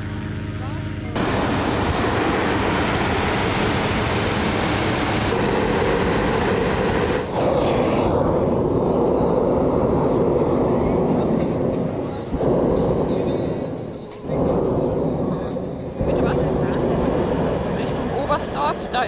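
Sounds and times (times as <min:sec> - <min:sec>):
propane burner roaring: 0:01.1 - 0:19.0.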